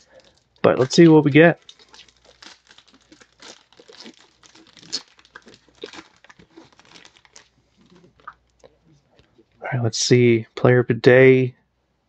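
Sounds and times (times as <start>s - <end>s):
foil wrapper tearing and crinkling: 0.0s - 8.2s.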